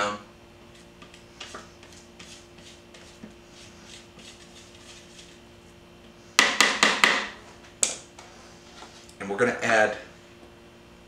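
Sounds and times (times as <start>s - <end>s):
spatula scraping bowl: 0.7s - 5.8s.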